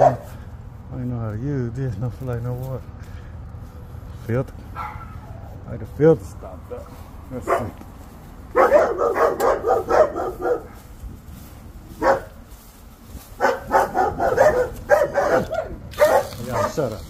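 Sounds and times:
dog barking: 0:00.0 - 0:00.3, 0:04.8 - 0:05.4, 0:06.7 - 0:07.8, 0:08.5 - 0:10.8, 0:12.0 - 0:12.4, 0:13.4 - 0:17.0.

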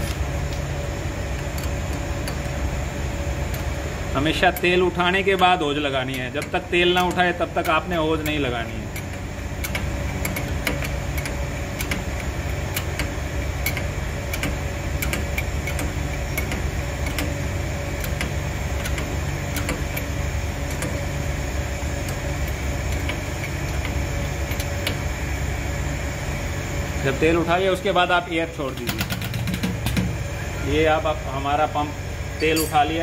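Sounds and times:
pump clicking: 0:04.4 - 0:17.4.

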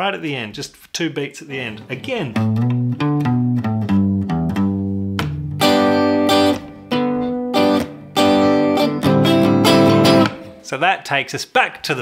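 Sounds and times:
guitar riff and strummed chords: 0:02.0 - 0:10.7.

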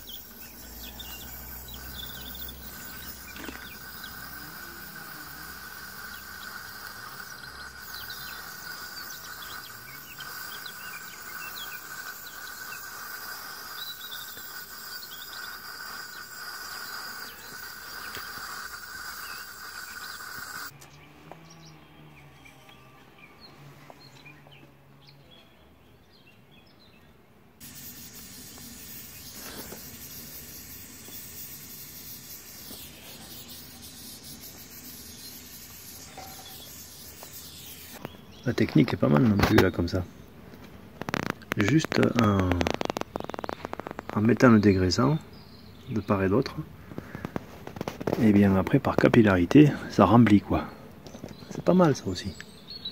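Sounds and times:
gas torch hissing: 0:00.0 - 0:20.8, 0:27.6 - 0:38.1, 0:41.0 - 0:44.7
insect drone: 0:00.0 - 0:20.8, 0:27.6 - 0:39.8, 0:41.0 - 0:52.9
bird chirps: 0:00.0 - 0:40.3, 0:42.0 - 0:46.4, 0:51.0 - 0:52.9.

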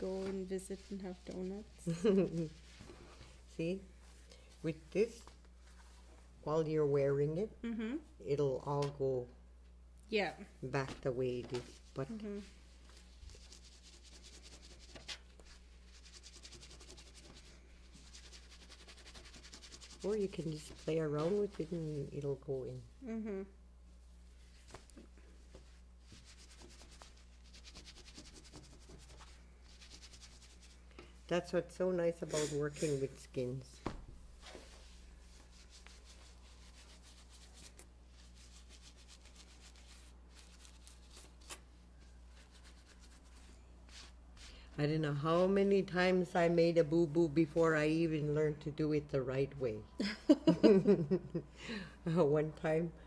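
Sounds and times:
low steady hum: 0:00.0 - 0:53.0
hands rubbing skin on table: 0:12.8 - 0:22.0, 0:24.3 - 0:30.9, 0:34.4 - 0:41.6, 0:42.3 - 0:44.6.

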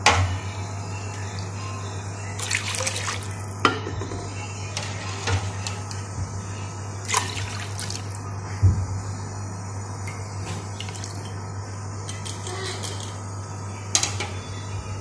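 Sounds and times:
steady low hum: 0:00.0 - 0:15.0
liquid sloshing in a pan: 0:07.1 - 0:08.2.

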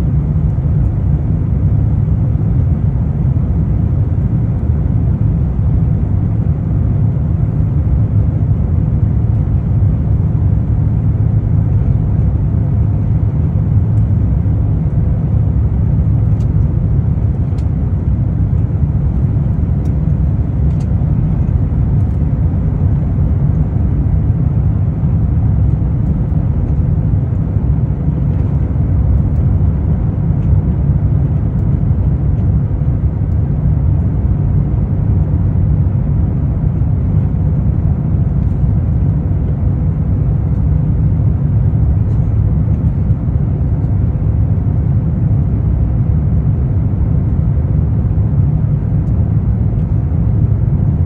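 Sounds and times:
jet engine cabin rumble: 0:00.0 - 0:51.0.

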